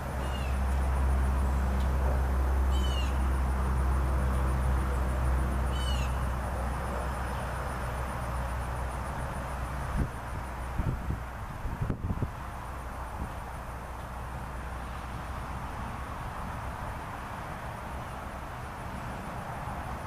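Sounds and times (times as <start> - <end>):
bird call: 0.2 - 0.6, 2.7 - 3.2, 5.7 - 6.2
wind buffeting microphone: 9.8 - 13.5.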